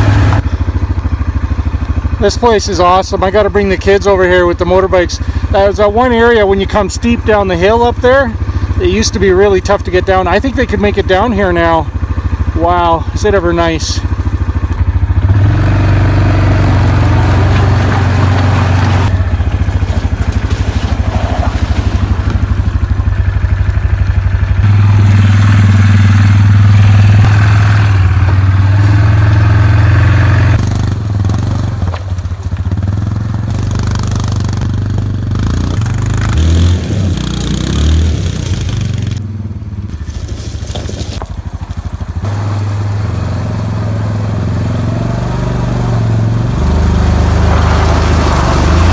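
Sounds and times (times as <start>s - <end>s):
atv engine running: 0.0s - 48.9s
crunching and scraping on stones: 17.2s - 24.1s, 31.2s - 32.9s, 39.9s - 42.6s.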